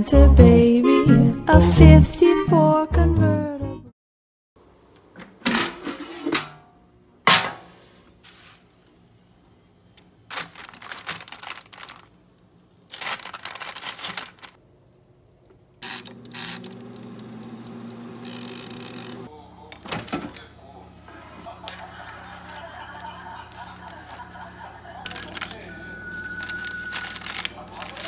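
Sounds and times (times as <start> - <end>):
background music: 0.0 - 3.9
rustling or crinkling: 7.8 - 9.0, 10.3 - 14.6, 26.2 - 28.0.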